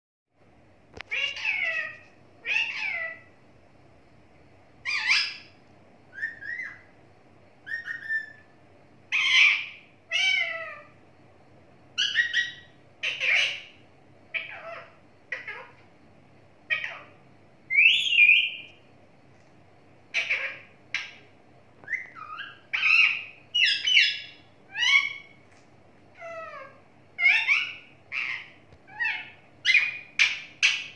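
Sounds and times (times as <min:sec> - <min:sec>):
parakeet calling: 0:01.0 - 0:03.4, 0:04.8 - 0:07.0, 0:07.6 - 0:08.5, 0:09.1 - 0:11.0, 0:12.0 - 0:15.8, 0:16.7 - 0:18.8, 0:20.1 - 0:25.4, 0:26.1 - 0:30.9.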